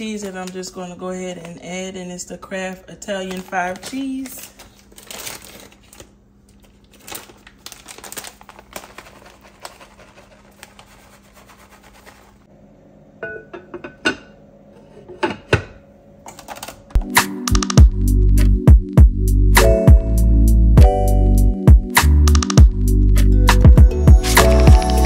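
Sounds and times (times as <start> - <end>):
plastic bag crinkling: 3.0 - 11.6, 24.2 - 25.0
loud music with a beat: 17.0 - 25.0.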